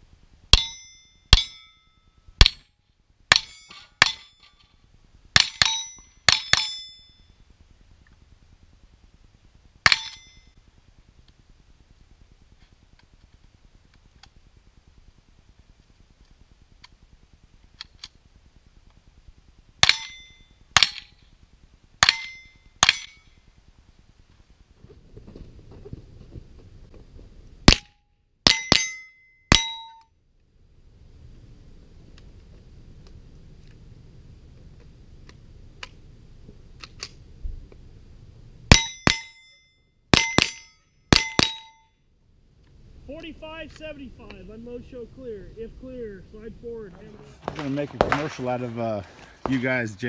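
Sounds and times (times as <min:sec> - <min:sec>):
steel plate ringing: 0:00.5 - 0:02.6, 0:03.3 - 0:04.6, 0:05.4 - 0:07.4, 0:09.8 - 0:10.6, 0:19.8 - 0:21.2, 0:22.0 - 0:23.4, 0:28.4 - 0:30.0, 0:38.7 - 0:42.0
rifle shots: 0:19.8 - 0:21.1, 0:47.3 - 0:48.8.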